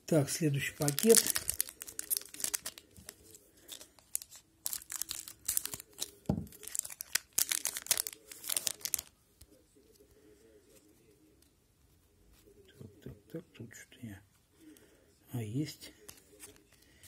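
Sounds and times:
plastic wrapper crinkling: 0:00.5 - 0:09.2.

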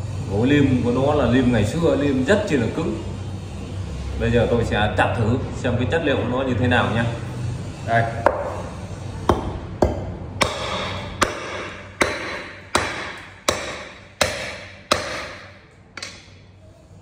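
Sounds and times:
knife chopping into wood: 0:09.3 - 0:16.2.

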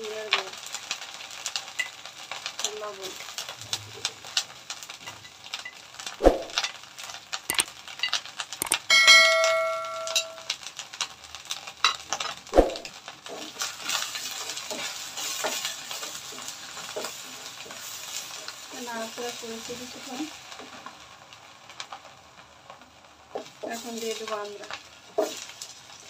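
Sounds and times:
spices sizzling in oil: 0:00.0 - 0:26.0
click and bell ding: 0:08.6 - 0:10.5.

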